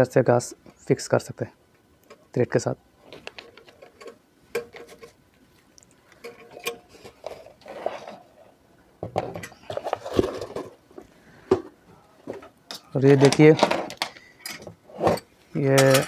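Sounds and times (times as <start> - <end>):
handling clicks and knocks: 12.3 - 16.0.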